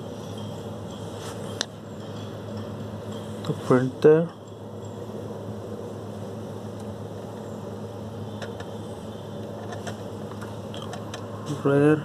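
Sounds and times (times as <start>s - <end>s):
low hum with hiss: 0.0s - 12.0s.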